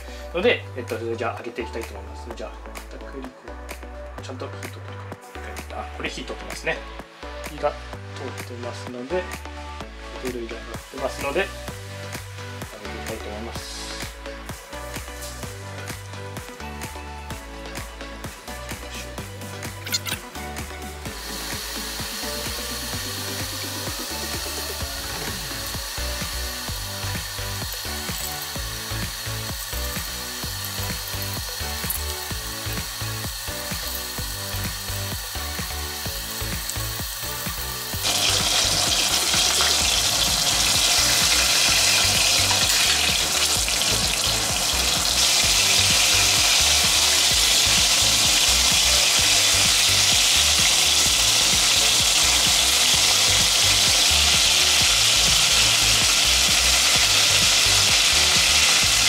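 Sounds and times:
background music with steady beat: 0:00.0 - 0:59.0
meat sizzling in oil: 0:13.6 - 0:59.0.

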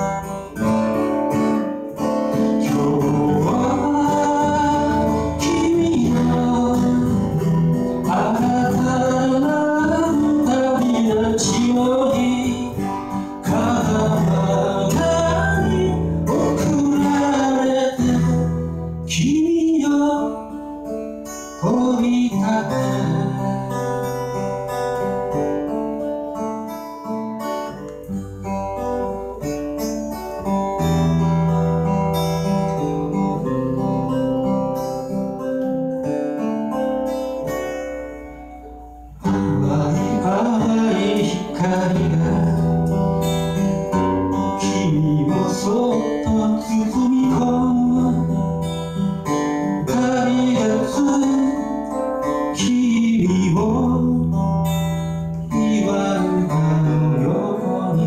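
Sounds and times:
acoustic guitar strumming: 0:00.0 - 0:58.0
man singing: 0:02.2 - 0:24.0, 0:39.2 - 0:58.0.

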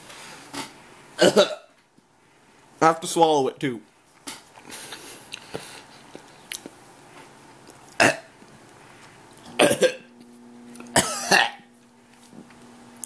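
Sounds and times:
faint steady hum: 0:00.0 - 0:13.0
man retching: 0:01.2 - 0:01.7, 0:08.0 - 0:08.3, 0:09.5 - 0:10.1, 0:10.9 - 0:11.7.

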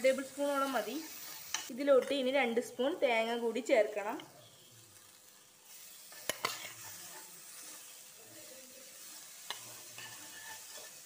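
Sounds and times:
vegetables sizzling in oil: 0:00.0 - 0:11.0
metal spoon stirring: 0:04.5 - 0:11.0.

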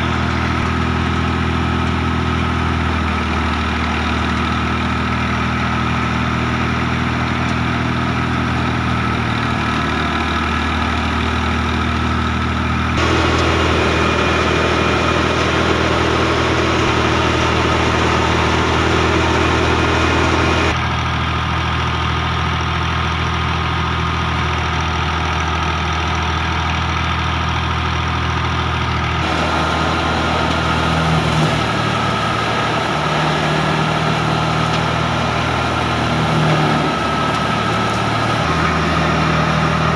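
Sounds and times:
tractor diesel engine running: 0:00.0 - 0:39.9
thresher drum whirring: 0:13.0 - 0:20.8, 0:29.2 - 0:39.9.

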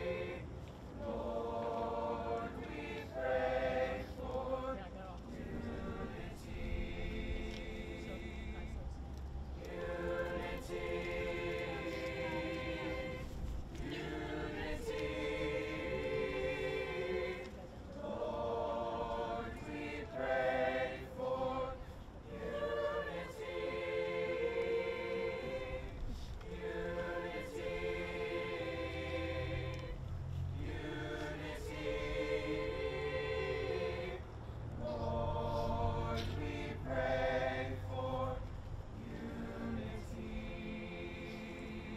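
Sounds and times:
choir singing: 0:00.0 - 0:41.9
singers breathing: 0:21.8 - 0:22.2, 0:34.3 - 0:34.8.

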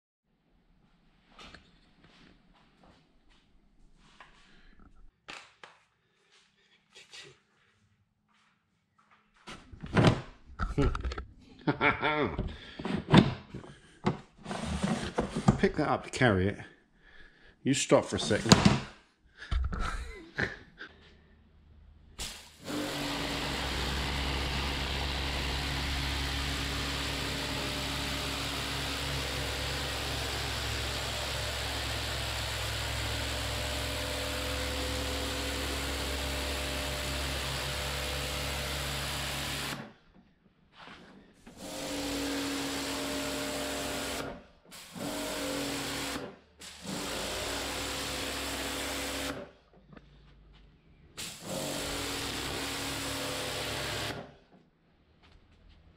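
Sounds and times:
water jet hissing: 0:22.2 - 0:33.1, 0:41.6 - 0:47.7, 0:51.2 - 0:54.1
pressure washer motor humming: 0:22.2 - 0:39.9, 0:41.5 - 0:49.4, 0:51.2 - 0:54.3.

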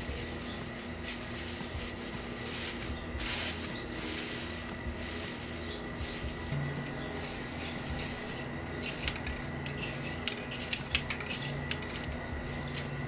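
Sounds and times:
plastic bags rustling: 0:00.0 - 0:06.6.

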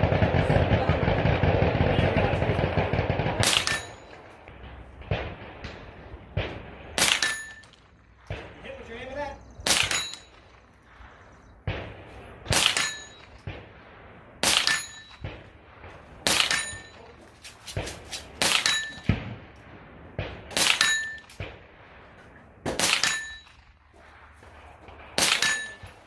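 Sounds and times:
rifle shots: 0:00.0 - 0:26.0
steel target ringing: 0:03.4 - 0:04.3, 0:07.0 - 0:07.8, 0:09.7 - 0:10.6, 0:12.5 - 0:13.5, 0:14.4 - 0:15.3, 0:16.4 - 0:17.2, 0:18.5 - 0:19.2, 0:20.7 - 0:21.3, 0:22.8 - 0:23.6, 0:25.2 - 0:26.0.

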